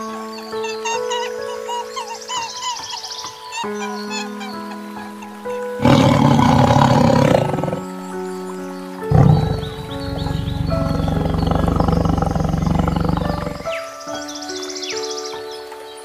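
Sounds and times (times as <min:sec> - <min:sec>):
soft background music: 0:00.0 - 0:16.0
tiger roaring and growling: 0:05.8 - 0:07.9, 0:09.1 - 0:13.8.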